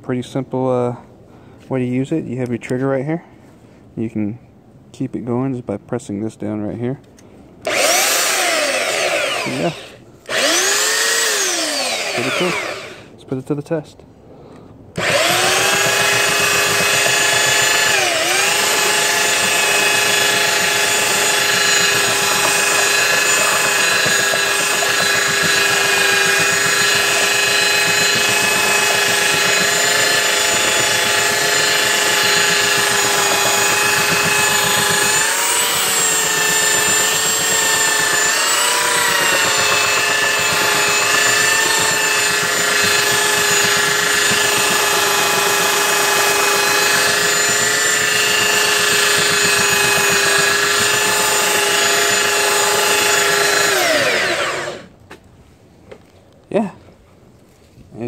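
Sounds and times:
belt sander whining: 7.6s - 13.1s, 15.0s - 54.9s.

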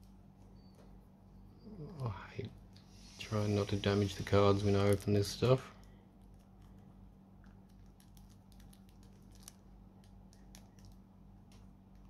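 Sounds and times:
low steady hum: 0.0s - 12.0s
plastic wrap crinkling: 7.5s - 12.0s.

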